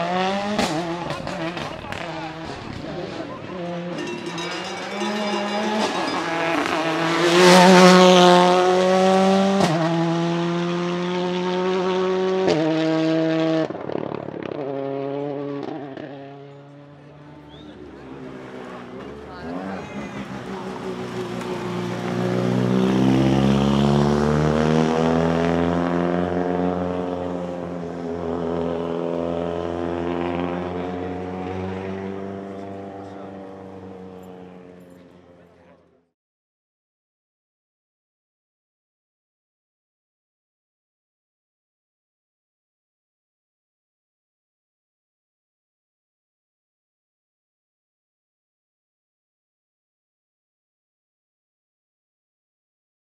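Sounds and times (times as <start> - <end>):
rally car engine passing: 0.0 - 35.8.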